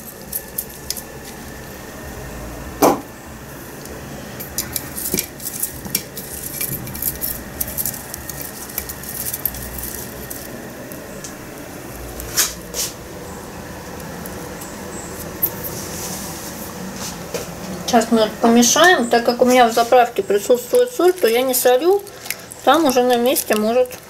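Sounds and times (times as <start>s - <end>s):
dried herbs crackling and rustling: 0.0s - 2.3s, 3.4s - 24.0s
sharp knock: 2.8s - 3.1s.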